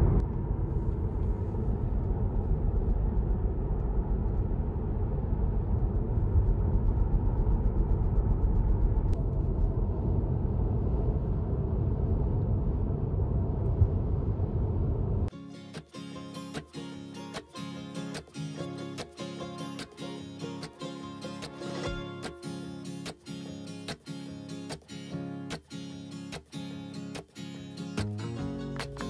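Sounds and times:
guitar music: 0:15.3 - 0:29.0.

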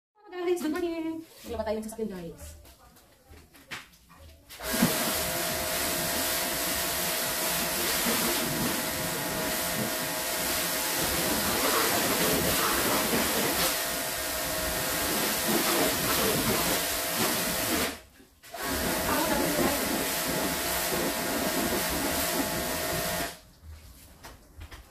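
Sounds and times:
high-pressure water jet hissing: 0:04.6 - 0:18.0, 0:18.6 - 0:23.4
pressure washer motor hum: 0:04.6 - 0:18.0, 0:18.6 - 0:23.4.

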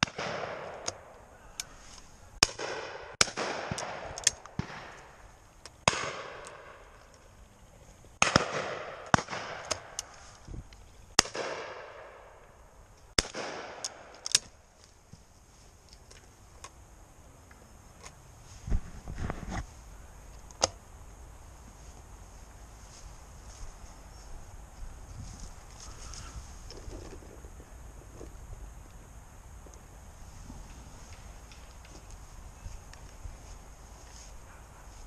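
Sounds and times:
shotgun shots echoing: 0:00.0 - 0:01.1, 0:02.4 - 0:05.1, 0:05.9 - 0:06.8, 0:08.2 - 0:10.0, 0:11.2 - 0:12.4, 0:13.2 - 0:14.4.

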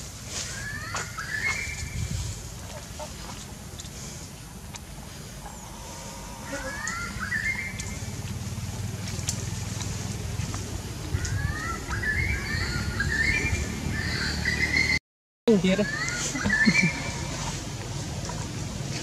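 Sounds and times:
bird calling: 0:00.0 - 0:03.7, 0:05.1 - 0:15.0, 0:15.7 - 0:17.6
steady low rumble: 0:01.6 - 0:14.3, 0:16.5 - 0:19.0.

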